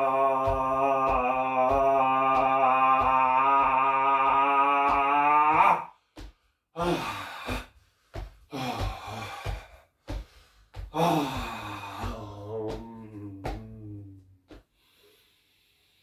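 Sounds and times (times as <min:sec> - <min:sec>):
man's held vocal tone: 0:00.0 - 0:05.9, 0:11.0 - 0:14.3
man breathing deeply: 0:05.9 - 0:12.5, 0:14.6 - 0:16.0.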